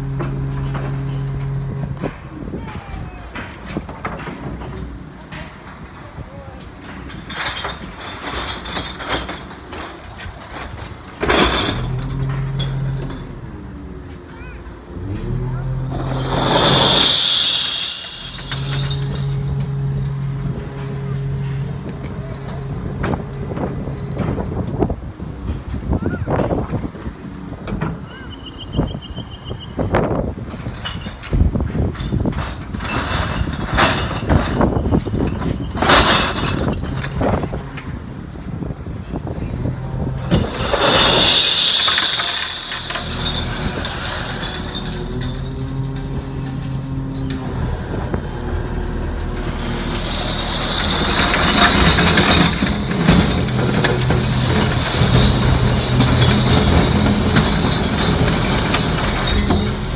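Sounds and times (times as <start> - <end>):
truck humming: 0.0 - 26.0, 32.8 - 59.9
glass bottles clinking in a bin: 6.9 - 13.4, 15.8 - 24.6, 32.0 - 37.6, 39.5 - 47.5, 48.8 - 59.9
glass crashing: 15.8 - 24.5, 40.2 - 47.5, 48.6 - 59.9
bottles and cans clinking: 40.3 - 47.4, 49.2 - 59.9.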